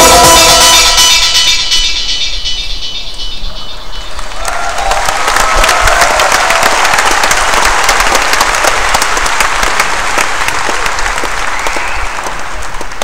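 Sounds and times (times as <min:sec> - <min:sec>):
audience applauding: 0:04.1 - 0:13.0.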